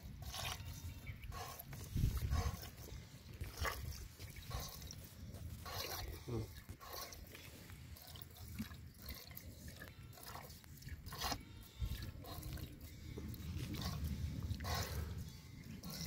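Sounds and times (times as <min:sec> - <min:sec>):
milk squirting from cow teats: 0:00.0 - 0:16.0.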